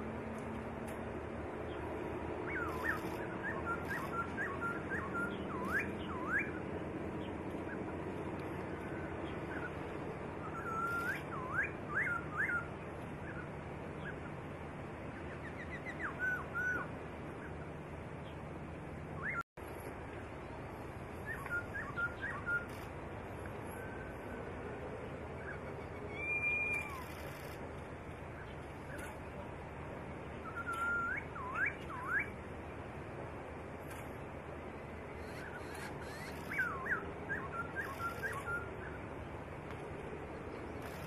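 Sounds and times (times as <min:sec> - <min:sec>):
bird whistling song: 0:02.4 - 0:14.2, 0:15.2 - 0:16.9, 0:19.2 - 0:19.4, 0:21.2 - 0:22.9, 0:25.4 - 0:27.6, 0:30.4 - 0:32.4, 0:35.2 - 0:39.0
background hiss: 0:17.0 - 0:41.0.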